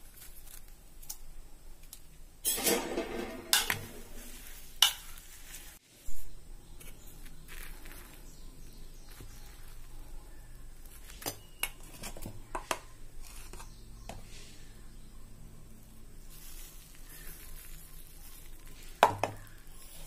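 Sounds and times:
spoon clinking and scraping pot: 0:02.4 - 0:05.2
soft wet rustling: 0:03.8 - 0:11.2.

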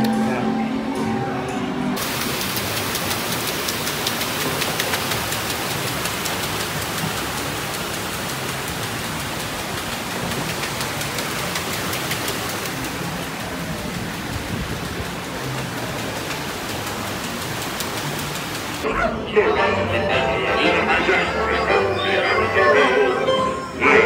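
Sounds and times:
small splashes and drips: 0:02.0 - 0:18.8
water rushing and splashing: 0:02.0 - 0:18.9.

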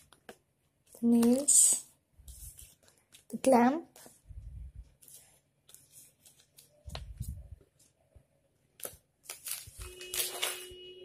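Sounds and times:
cards rustling and tapping on plastic: 0:00.0 - 0:04.2, 0:08.7 - 0:10.7.

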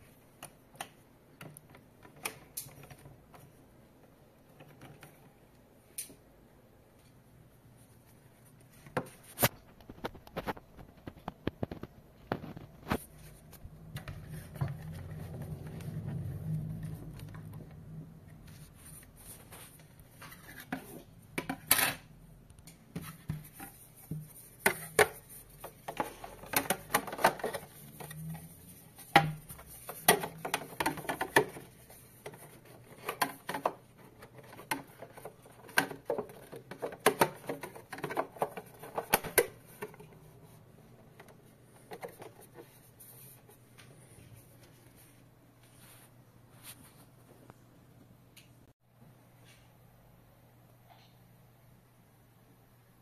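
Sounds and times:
metal and plastic parts clattering: 0:25.8 - 0:28.2.

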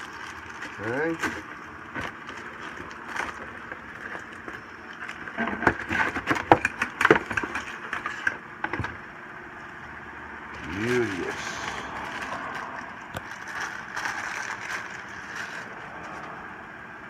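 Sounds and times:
cardboard scraping and rustling: 0:00.0 - 0:08.8, 0:11.6 - 0:16.4
crackles and knocks: 0:00.0 - 0:09.0, 0:12.0 - 0:16.4.

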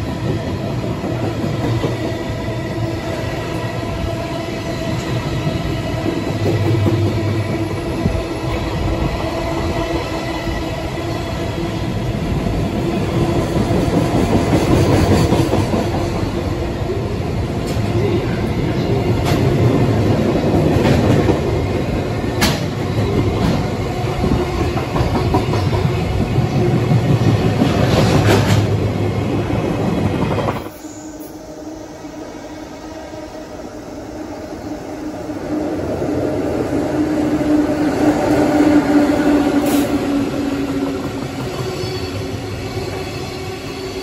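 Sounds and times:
freight train wheels on rails: 0:00.0 - 0:44.0
clanks over rail joints: 0:22.4 - 0:23.7.

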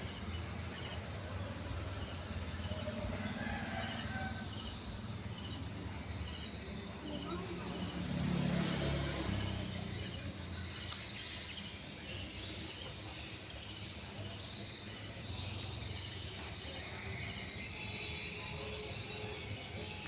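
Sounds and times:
faint background noise: 0:00.0 - 0:20.0.

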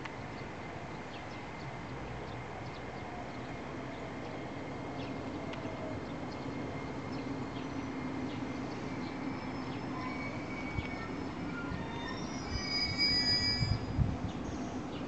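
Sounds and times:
electric train rumble: 0:00.0 - 0:15.0
train brake squeal: 0:09.1 - 0:14.0.

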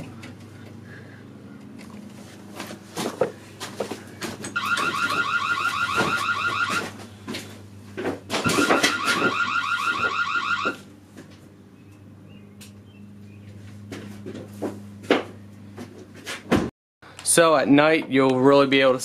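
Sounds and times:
pulsing electronic alarm tone: 0:04.6 - 0:07.0, 0:08.4 - 0:10.9.

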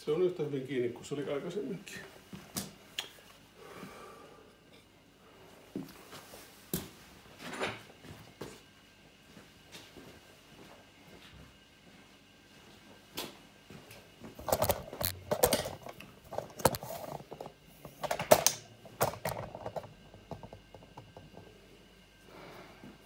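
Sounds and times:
phone handling clicks and rustles: 0:14.4 - 0:21.2.

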